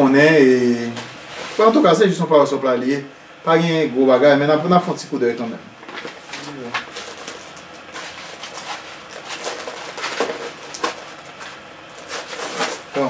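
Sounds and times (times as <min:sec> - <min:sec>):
packaging rustling: 0:05.8 - 0:13.0.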